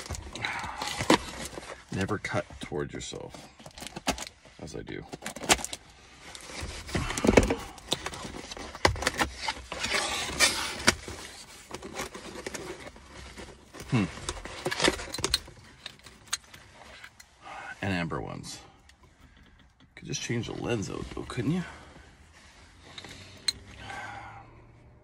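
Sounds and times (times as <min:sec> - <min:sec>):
packing rustling: 0:00.0 - 0:02.4, 0:03.2 - 0:17.2
cardboard scraping and tearing: 0:06.4 - 0:14.9.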